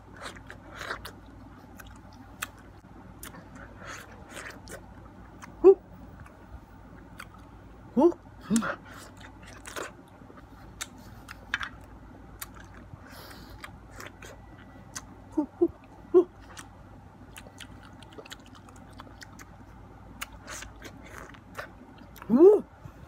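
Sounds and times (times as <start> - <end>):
person chewing mango: 0.0 - 22.8
short pitched vocal sounds: 22.2 - 22.8.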